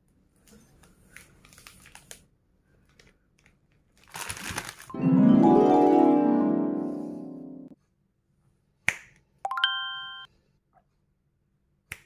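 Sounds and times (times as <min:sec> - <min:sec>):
plastic wrappers crinkling: 0:01.0 - 0:05.0
harp-like musical chime: 0:04.9 - 0:07.8.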